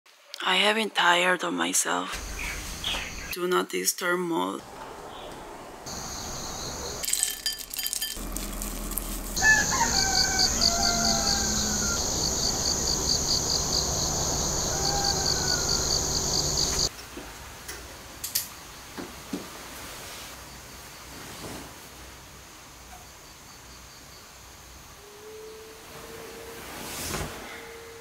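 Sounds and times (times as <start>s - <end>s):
rooster crowing: 9.4s - 16.9s.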